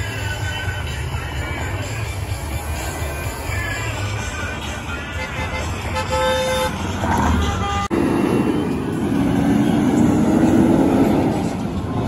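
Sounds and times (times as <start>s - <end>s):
general traffic: 0.0s - 12.0s
truck driving past: 5.8s - 12.0s.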